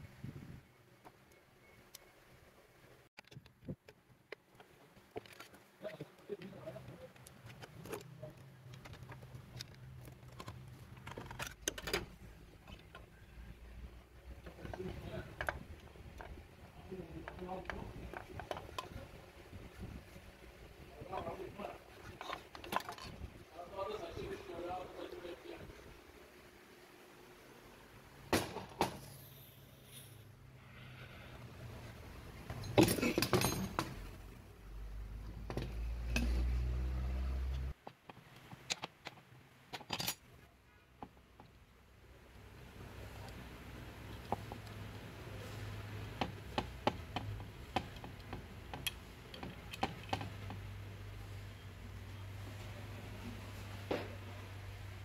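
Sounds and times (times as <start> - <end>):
metal tools clinking on workbench: 32.5 - 34.0, 39.8 - 40.3
tools clicking on engine parts: 46.2 - 50.8.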